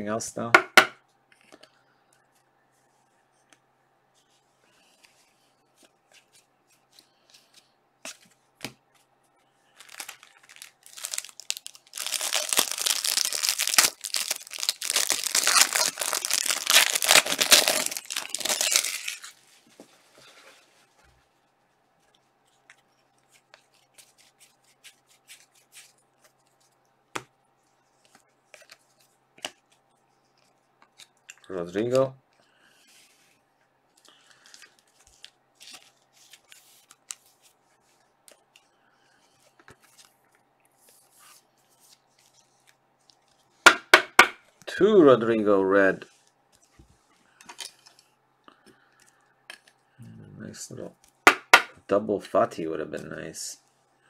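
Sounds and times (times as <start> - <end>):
plastic wrapper rustling: 9.7 - 20.8.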